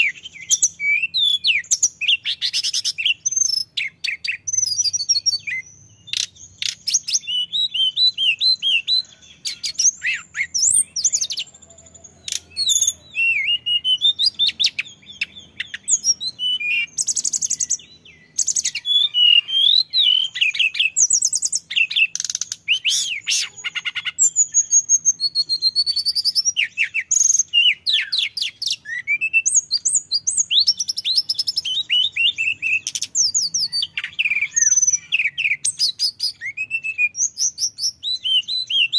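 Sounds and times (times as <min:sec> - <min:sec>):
bird singing whistled phrases: 0:00.0 - 0:38.9.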